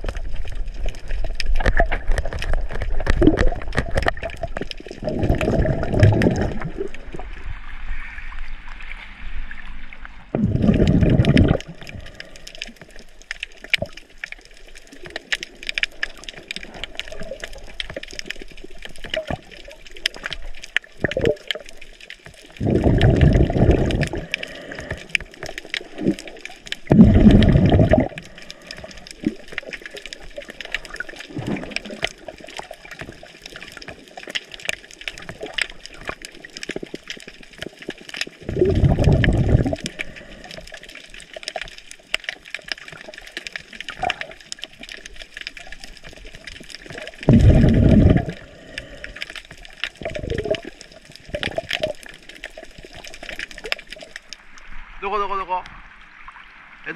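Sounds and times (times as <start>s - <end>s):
low watery rushes: 0.0s - 12.9s, 22.5s - 32.9s, 38.3s - 40.8s, 46.4s - 52.0s
underwater crackle: 0.0s - 56.9s.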